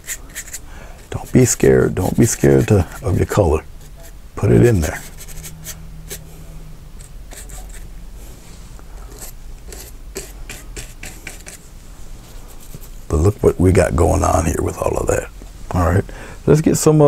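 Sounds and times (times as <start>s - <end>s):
brush bristles scratching canvas: 0.0s - 6.2s, 7.3s - 7.9s, 9.1s - 11.6s
faint low hum: 0.0s - 17.0s.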